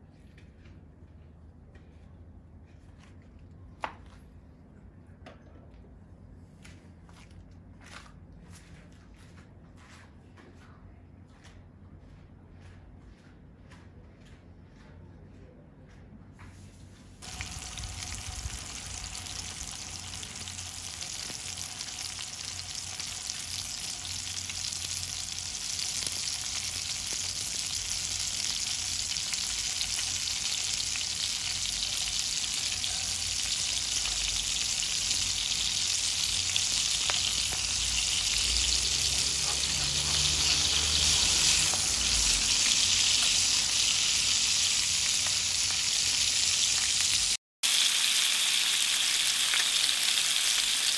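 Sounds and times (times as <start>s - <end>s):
fish sizzling in a pan: 17.2s - 50.9s.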